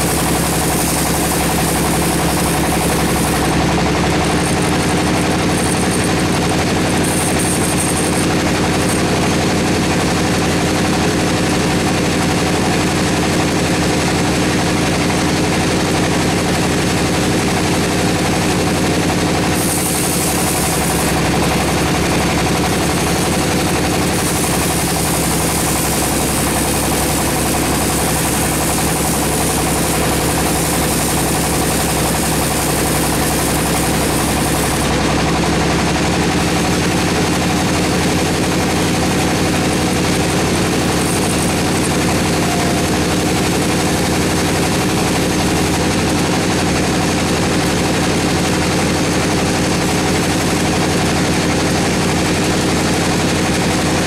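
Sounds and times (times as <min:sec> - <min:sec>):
saw blade hiss cutting wood: 0:00.0 - 0:09.2, 0:19.4 - 0:35.0, 0:39.0 - 0:44.6
sawmill machine drone: 0:00.0 - 0:54.0.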